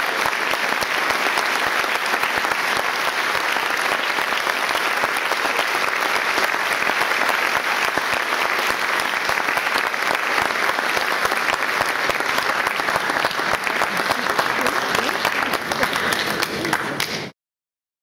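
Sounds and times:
audience applauding: 0.0s - 17.3s.

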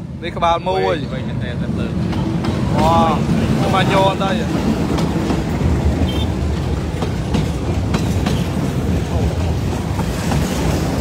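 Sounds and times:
freight train rumbling past: 0.0s - 11.0s
wheels clacking over rail joints: 1.6s - 11.0s.

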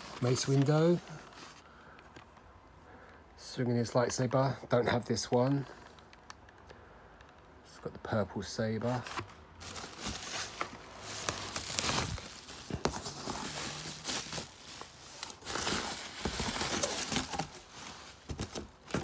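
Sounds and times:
packaging rustling and crinkling: 0.0s - 2.4s, 8.9s - 19.0s.

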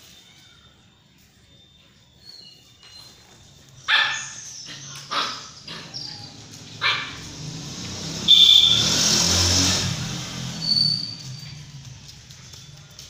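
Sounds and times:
puppies yipping: 1.6s - 8.9s, 10.1s - 13.0s
loud rushing noise: 6.5s - 11.4s.

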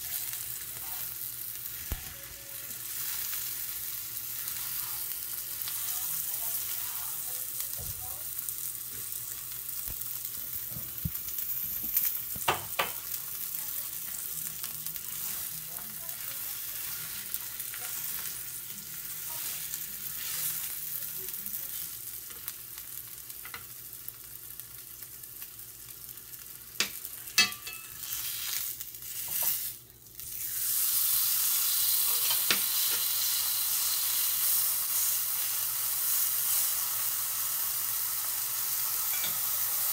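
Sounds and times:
steak sizzling in a skillet: 0.0s - 39.9s
chopsticks knocking a pan: 12.4s - 13.0s.

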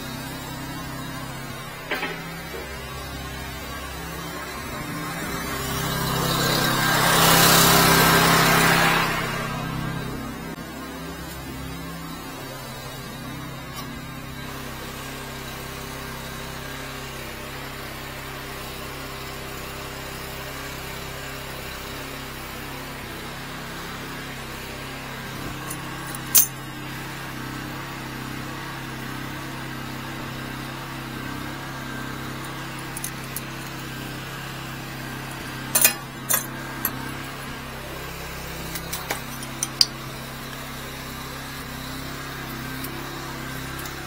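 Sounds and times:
metal hose fittings clinking: 0.8s - 3.0s, 25.6s - 26.6s, 32.4s - 33.8s, 35.3s - 37.4s, 38.6s - 40.0s.

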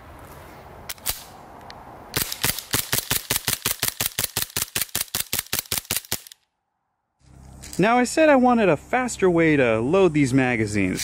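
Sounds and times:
sharp clicks: 0.9s - 6.5s
airsoft pistol rapid fire: 2.2s - 6.4s.

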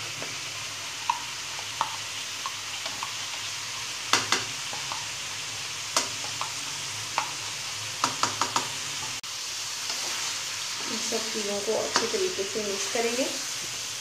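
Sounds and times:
food sizzling in oil: 0.0s - 14.0s
sharp taps and clicks: 8.0s - 8.7s.

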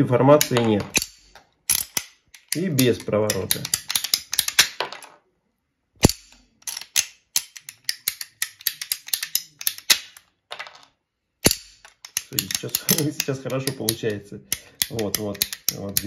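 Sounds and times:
pipe shears ratchet clicking: 0.4s - 4.7s, 6.0s - 10.0s, 11.4s - 16.0s
pipe shears snapping: 0.4s - 4.7s, 6.0s - 10.2s, 11.4s - 16.0s.

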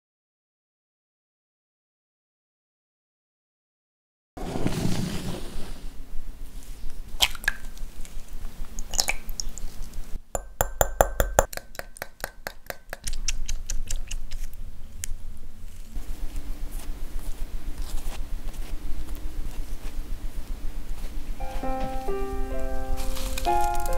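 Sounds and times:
whisk clinking against glass bowl: 10.4s - 13.1s.

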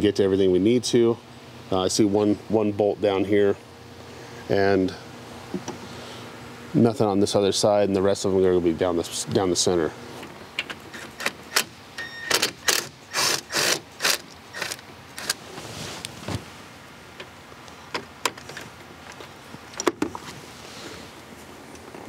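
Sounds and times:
impact driver bursts: 11.0s - 15.4s.

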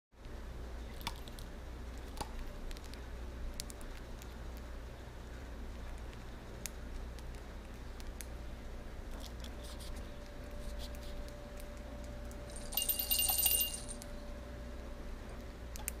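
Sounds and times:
small metal bell jingling: 12.5s - 14.1s.

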